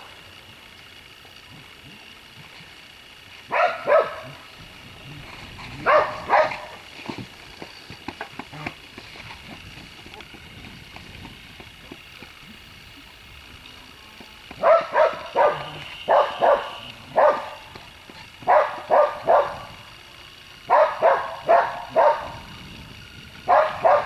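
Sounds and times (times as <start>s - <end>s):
dog barking: 3.5s - 4.4s, 5.8s - 6.8s, 14.6s - 17.6s, 18.4s - 19.7s, 20.7s - 22.4s, 23.5s - 24.0s.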